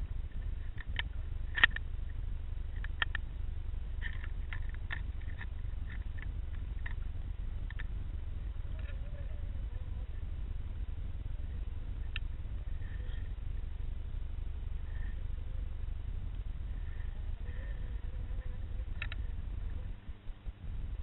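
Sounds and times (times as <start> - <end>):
faint wavering tone: 0.0 - 21.0
low underwater rumble: 0.0 - 21.0
small sharp clicks: 0.3 - 1.9, 2.7 - 3.3, 4.0 - 7.9, 18.9 - 19.3.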